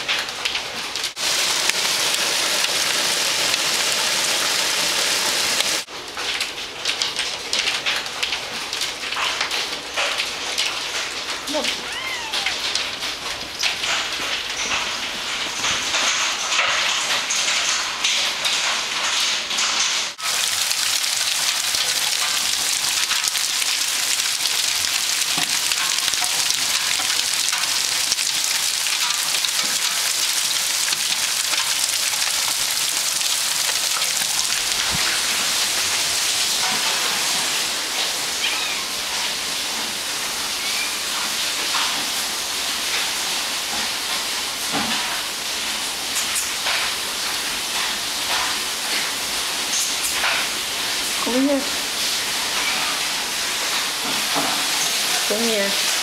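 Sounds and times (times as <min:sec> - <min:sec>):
hail and heavy rain pelting: 0:00.0 - 0:56.0.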